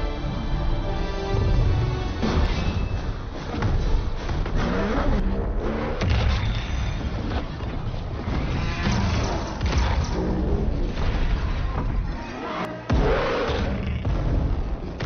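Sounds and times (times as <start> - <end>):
dramatic orchestral score: 0.0 - 6.1.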